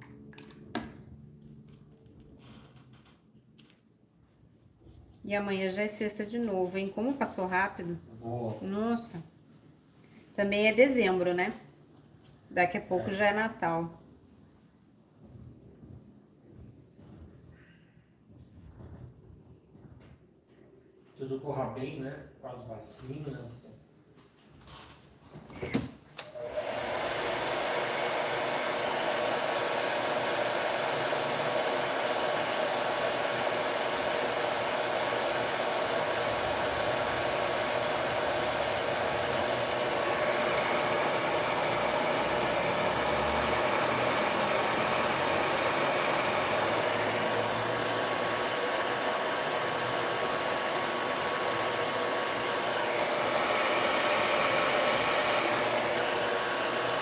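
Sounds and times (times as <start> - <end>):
hair dryer running: 26.2 - 57.0.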